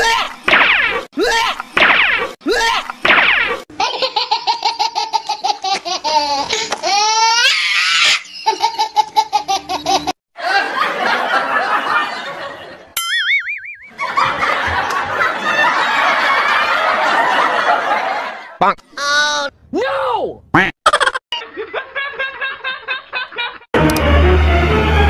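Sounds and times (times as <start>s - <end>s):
warbling wavering tone: 13.0s - 14.0s
person laughing loudly: 20.6s - 23.7s.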